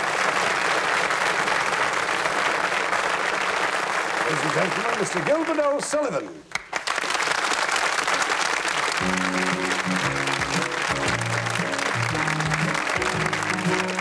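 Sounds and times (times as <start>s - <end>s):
audience applauding: 0.0s - 14.0s
piano: 9.0s - 14.0s.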